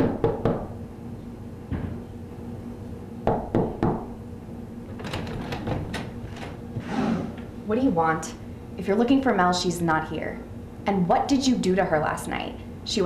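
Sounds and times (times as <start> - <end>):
knuckles knocking on door: 3.2 - 4.1.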